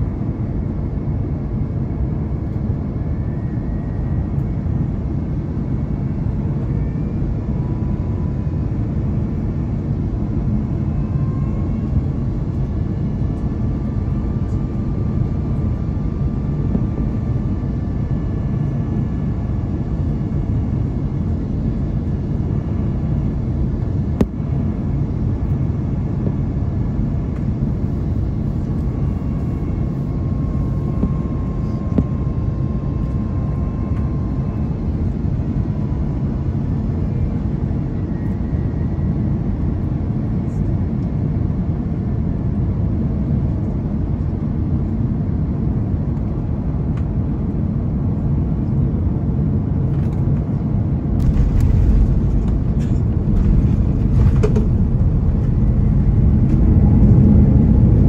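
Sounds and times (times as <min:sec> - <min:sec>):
aircraft cabin rumble: 0:00.0 - 0:58.0
aircraft touching down: 0:49.9 - 0:58.0.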